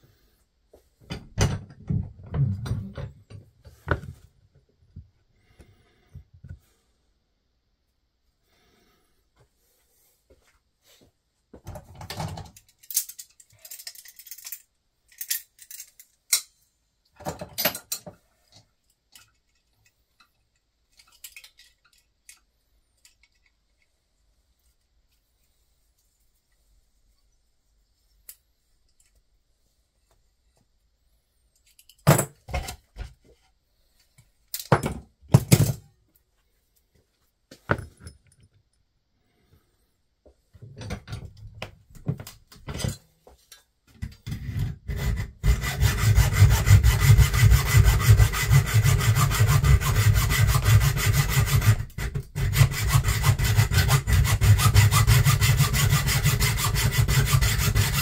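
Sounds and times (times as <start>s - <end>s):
small parts clicking and knocking: 11.8s - 24.0s, 28.2s - 29.3s, 31.5s - 32.7s
saw cutting with rasping strokes: 44.8s - 58.0s.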